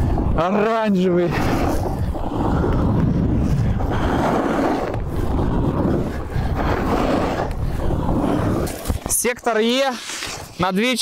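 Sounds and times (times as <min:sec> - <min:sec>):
wind on microphone: 0:00.0 - 0:10.6
snowboard edge scraping snow: 0:00.0 - 0:11.0.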